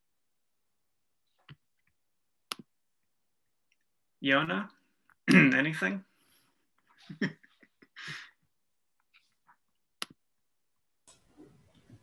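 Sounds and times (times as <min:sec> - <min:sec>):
person breathing softly: 0:08.0 - 0:08.4.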